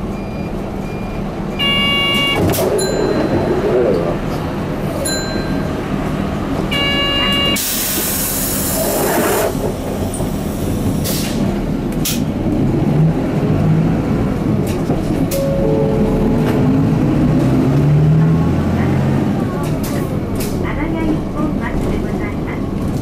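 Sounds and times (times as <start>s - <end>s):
bus diesel engine: 0.0s - 23.0s
short chime: 15.4s - 16.2s.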